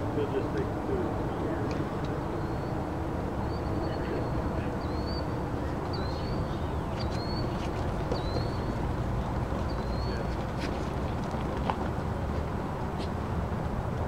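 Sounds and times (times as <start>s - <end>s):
steady outdoor rumble: 0.0s - 14.0s
faint rising chirp: 2.3s - 9.0s.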